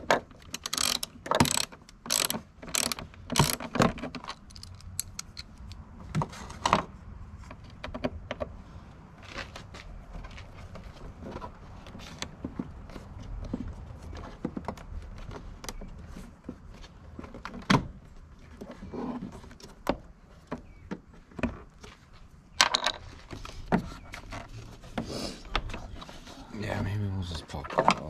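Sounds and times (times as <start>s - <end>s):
plastic parts clicking and knocking: 0.0s - 8.6s, 22.6s - 24.5s.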